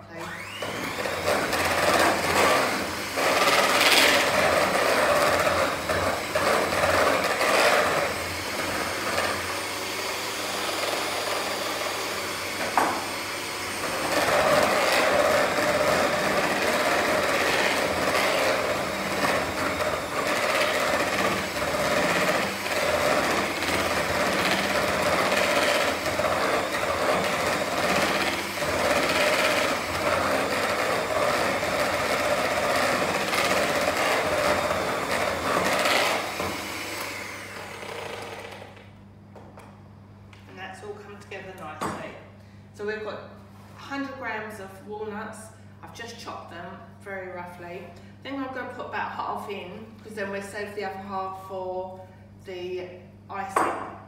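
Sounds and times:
electric mixer running: 0.0 - 39.6.

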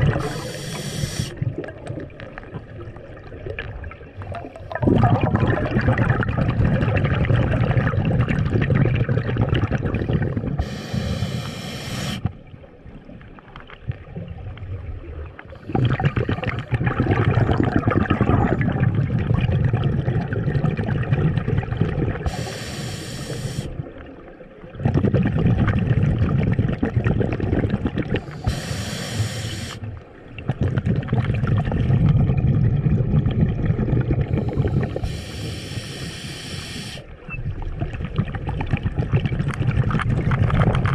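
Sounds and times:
exhaled bubbles bubbling: 0.0 - 40.9
regulator inhale hiss: 0.1 - 1.4, 10.6 - 12.3, 22.3 - 23.8, 28.2 - 29.9, 34.3 - 37.1.

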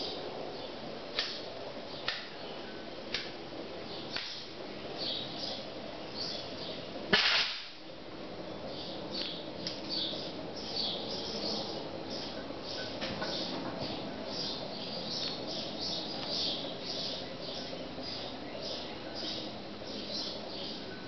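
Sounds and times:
sharp pop: 7.1 - 7.8.

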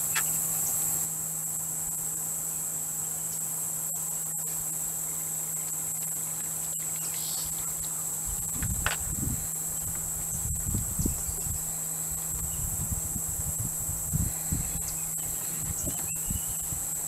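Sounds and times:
insect chorus drone: 0.0 - 17.0.

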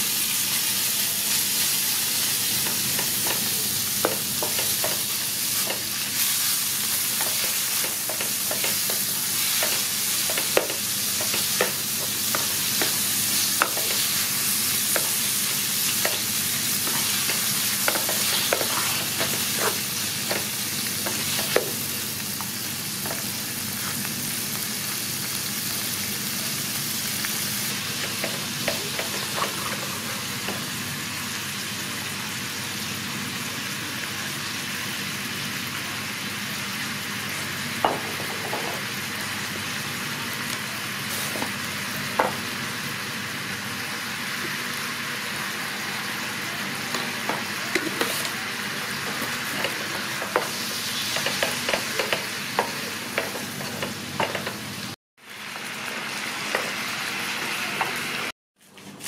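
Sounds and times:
meat sizzling in oil: 0.0 - 58.3
spatula knocking against pan: 51.2 - 54.6.

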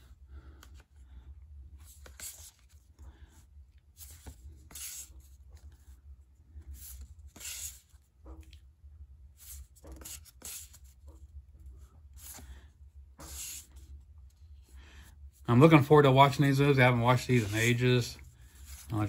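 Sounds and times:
photo cards being shuffled: 1.8 - 2.9, 16.6 - 19.0.

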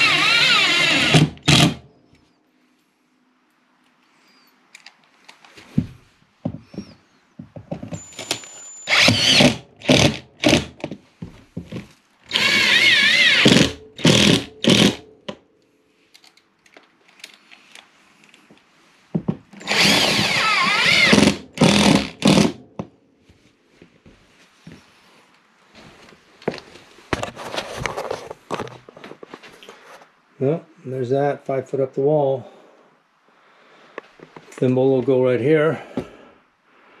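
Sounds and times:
cordless drill driving screws: 0.0 - 1.8, 8.0 - 10.8, 12.3 - 15.0, 19.6 - 22.6.

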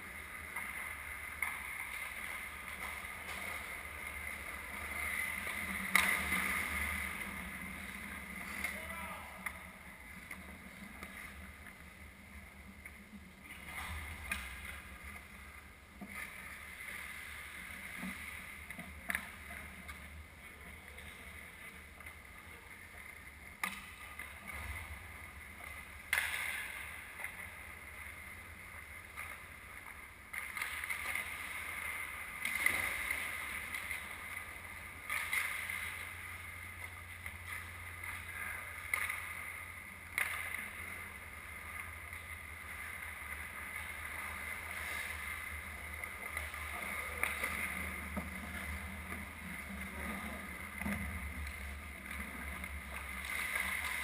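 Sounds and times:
hockey sticks and puck clacking: 0.0 - 11.9, 12.7 - 17.0, 17.6 - 20.2, 20.8 - 54.0
players' voices: 7.8 - 9.8, 46.1 - 48.8.

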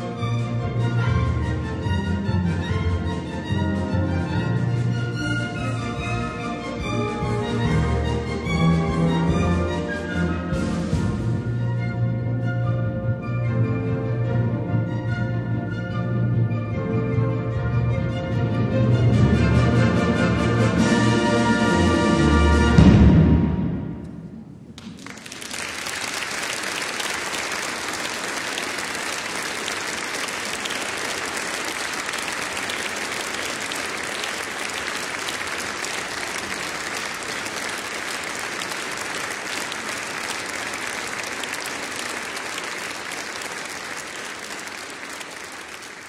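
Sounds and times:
audience applauding: 24.8 - 46.0.

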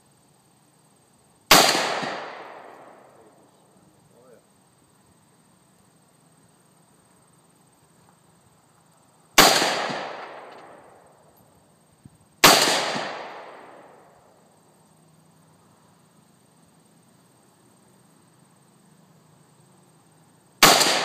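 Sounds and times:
rifle shots with echo: 1.5 - 3.2, 9.4 - 11.0, 12.4 - 14.2, 20.6 - 21.0.

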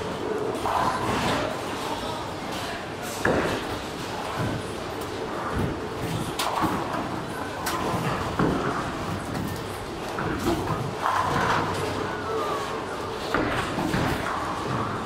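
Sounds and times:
bowling balls rolling: 3.1 - 15.0.

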